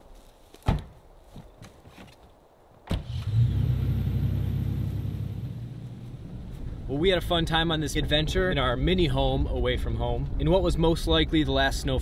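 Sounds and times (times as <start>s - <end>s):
truck door slamming: 0.6s - 1.0s
truck engine starting and idling: 2.9s - 6.9s.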